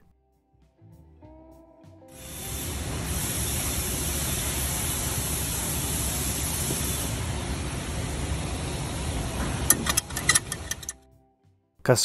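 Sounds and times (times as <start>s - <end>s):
rushing noise: 2.2s - 10.9s.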